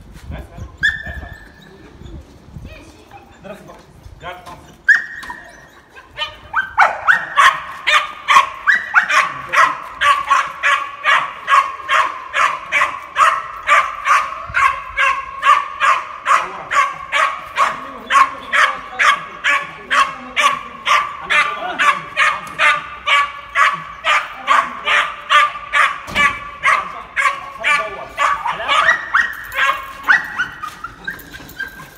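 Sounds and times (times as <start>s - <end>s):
puppy whining: 0.6s - 7.5s, 27.6s - 31.9s
puppy barking rapidly: 6.2s - 31.9s.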